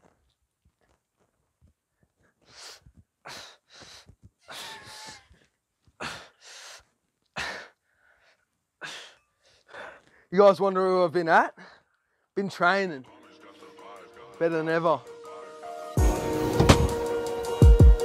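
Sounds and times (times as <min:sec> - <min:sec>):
man breathing hard with strain: 0:02.1 - 0:10.3.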